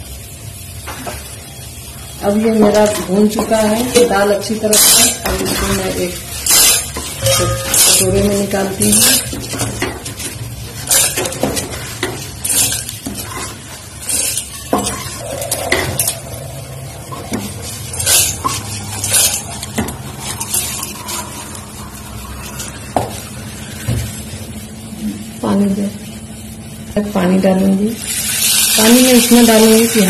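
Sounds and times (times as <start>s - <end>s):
metal spatula scraping a wok: 2.7s - 23.0s
dry lentils rattling in a pan: 2.8s - 16.2s, 28.0s - 30.0s.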